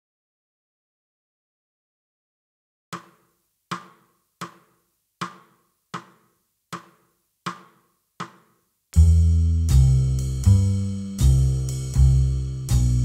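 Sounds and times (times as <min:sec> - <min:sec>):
percussive count-in clicks: 0:03.0 - 0:08.4
jazz bass and chords: 0:09.0 - 0:13.0.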